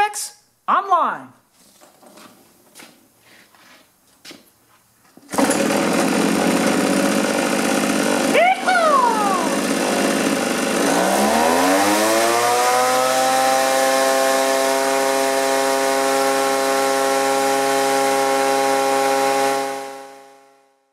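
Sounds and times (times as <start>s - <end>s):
leaf blower engine revving: 5.2s - 20.6s.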